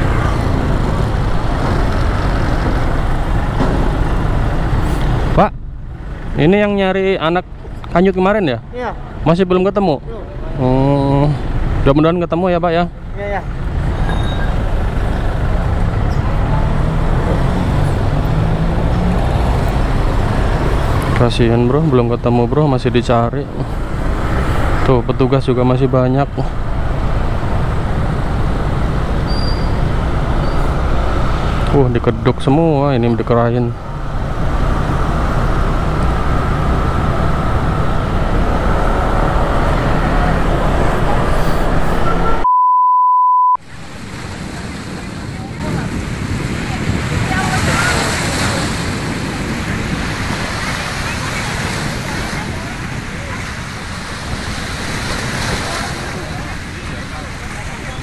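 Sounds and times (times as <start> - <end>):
scooters running alongside: 0.0 - 5.2, 43.6 - 58.0
road rumble: 0.0 - 42.5, 43.6 - 58.0
motorbike engine drone: 13.0 - 42.4
steady pure beep: 14.0 - 14.6, 42.0 - 43.6
wind on microphone: 43.6 - 58.0.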